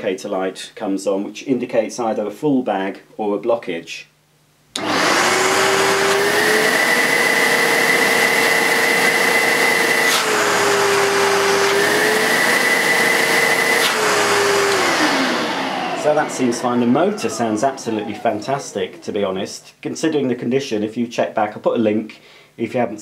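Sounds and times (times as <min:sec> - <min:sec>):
vacuum cleaner motor whining: 0:04.8 - 0:19.6.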